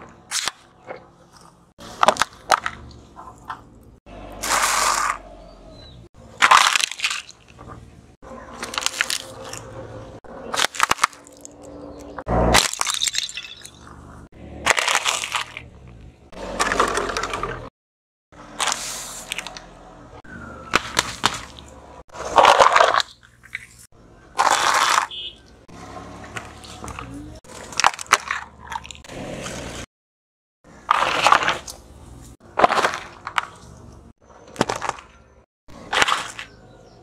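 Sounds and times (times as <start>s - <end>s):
low tyre rumble: 0.0s - 17.7s, 18.3s - 29.9s
tyre crushing plastic objects: 1.9s - 3.6s, 6.4s - 7.8s, 8.6s - 9.6s, 10.5s - 11.6s, 14.7s - 15.7s, 20.7s - 23.8s, 24.4s - 25.2s, 26.3s - 29.0s, 30.8s - 31.8s, 32.4s - 33.8s, 34.5s - 36.5s.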